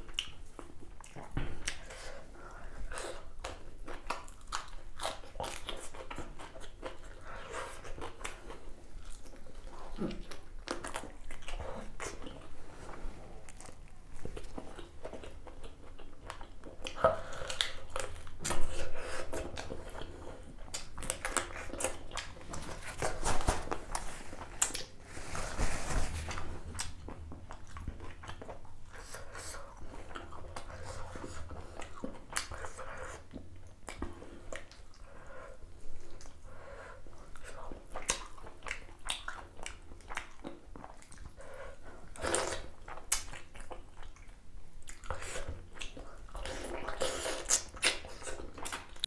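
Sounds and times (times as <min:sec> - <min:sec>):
person chewing and biting: 0:02.9 - 0:12.5, 0:42.1 - 0:49.0.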